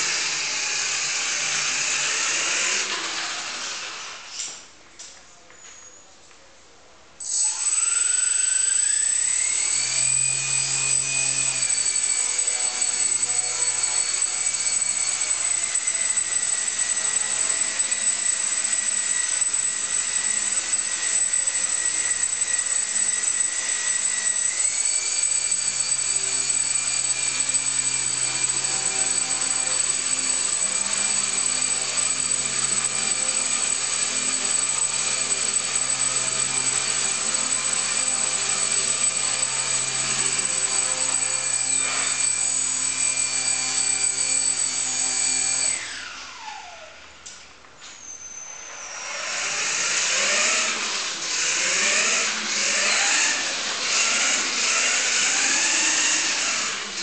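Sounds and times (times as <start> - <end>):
electric motor whine: 7.3 - 46.9.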